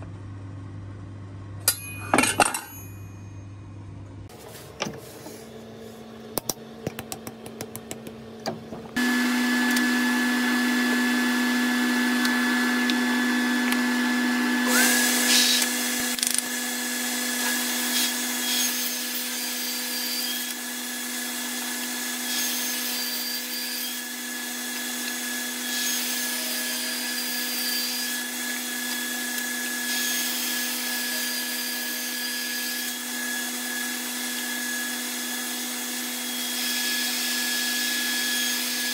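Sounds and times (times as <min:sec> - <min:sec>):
table saw motor hum: 0:08.9 - 0:38.9.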